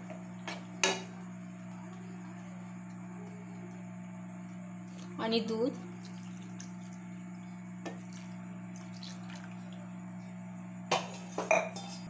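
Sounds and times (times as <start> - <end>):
milk pouring into a pan: 5.9 - 7.1, 7.9 - 9.9.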